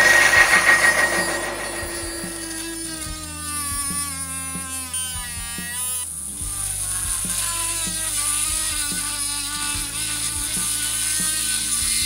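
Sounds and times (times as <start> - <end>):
drill bit against wood: 0.0 - 3.0
small motor whine: 0.0 - 12.0.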